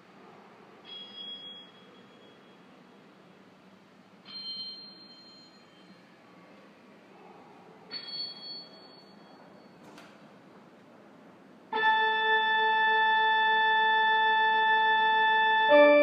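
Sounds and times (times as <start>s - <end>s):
organ chord: 11.7s - 16.0s.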